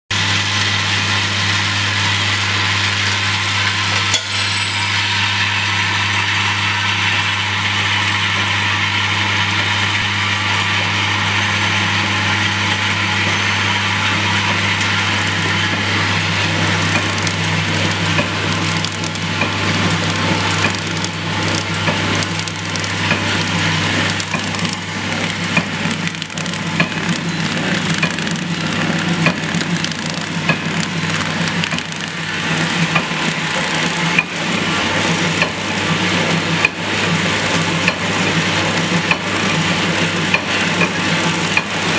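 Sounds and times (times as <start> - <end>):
bowl feeder humming: 3.9 - 7.1
sharp machine clicks: 24.1 - 32.2.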